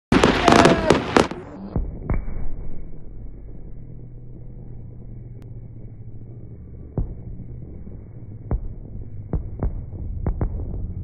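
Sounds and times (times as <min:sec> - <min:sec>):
fireworks crackling and banging: 0:00.1 - 0:02.5
dull booms: 0:00.1 - 0:11.0
low muffled rumble with hum: 0:01.3 - 0:11.0.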